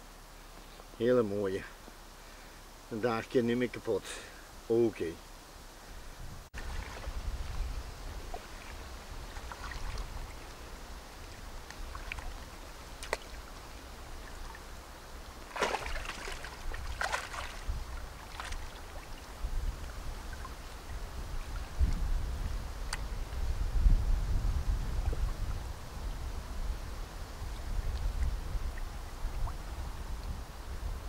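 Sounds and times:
water splashing and sloshing: 6.6 - 22.0
loud splashes: 15.4 - 19.1.

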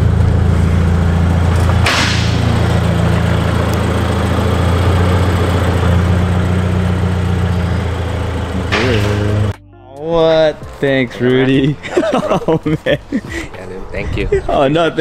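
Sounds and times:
car engine idling: 0.0 - 9.6.

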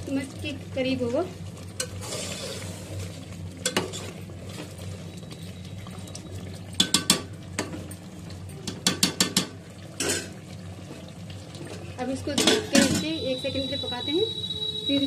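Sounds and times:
metal spoon scraping a pot: 1.8 - 3.0.

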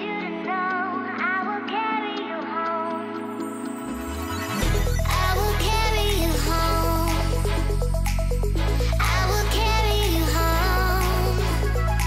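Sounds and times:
sliding melody line: 3.2 - 12.0
steady beat: 3.9 - 12.0.

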